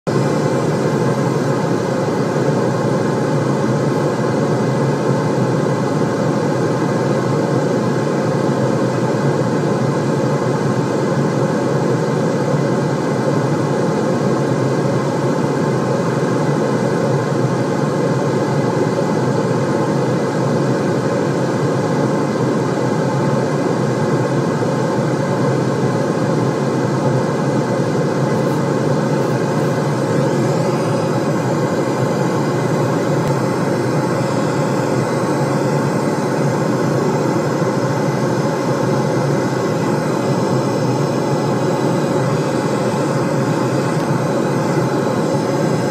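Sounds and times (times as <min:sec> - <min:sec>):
deep rushing white noise: 0:23.1 - 0:45.9.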